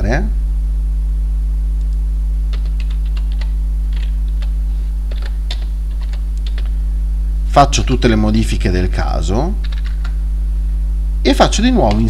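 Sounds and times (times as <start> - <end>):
low electrical hum: 0.0 - 12.0
computer keyboard typing: 2.5 - 6.8, 9.6 - 10.2.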